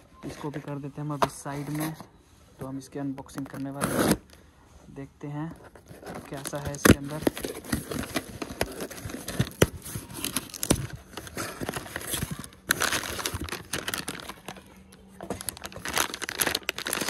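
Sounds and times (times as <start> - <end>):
plastic packing bag crinkling: 5.9 - 17.0.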